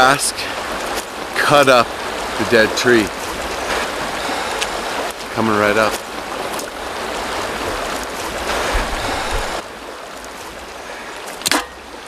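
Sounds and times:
river rushing: 0.0 - 12.0.

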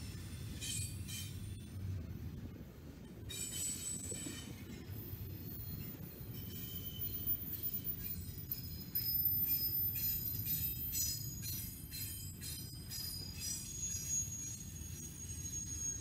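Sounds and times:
wheels rumbling on rail: 0.0 - 16.0
high ringing wheel tones: 5.4 - 16.0.

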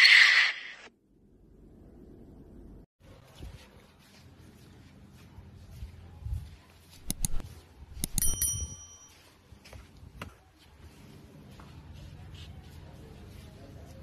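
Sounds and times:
mouse clicks: 7.0 - 7.4, 8.0 - 8.4
bright bell ding: 8.0 - 9.3.

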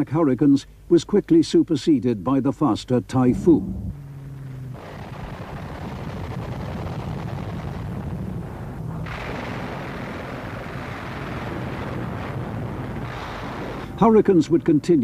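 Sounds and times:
low rumbling noise: 3.0 - 7.0.

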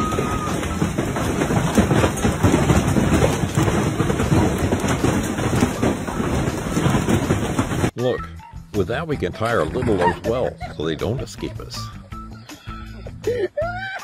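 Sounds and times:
hail and rain pelting: 0.0 - 8.0.

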